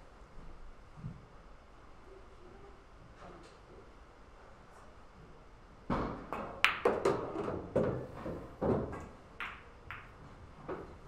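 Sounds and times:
pool balls clicking and knocking: 0:05.9 - 0:11.0.

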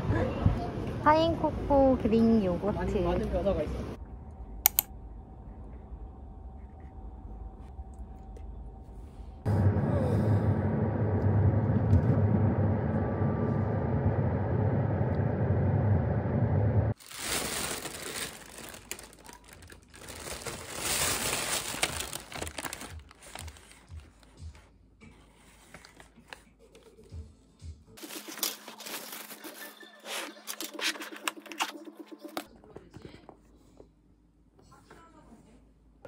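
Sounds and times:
plastic bag rustling: 0:17.0 - 0:24.4, 0:28.0 - 0:31.8.

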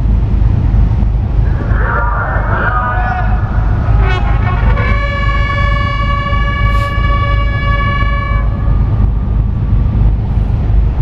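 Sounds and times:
low rumble: 0:00.0 - 0:11.0
bugle long note: 0:03.9 - 0:08.7.

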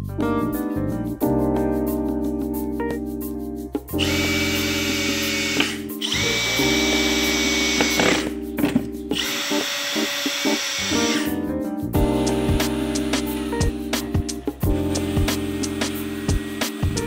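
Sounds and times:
background music: 0:00.0 - 0:17.0
cordless drill driving screws: 0:04.0 - 0:11.3.

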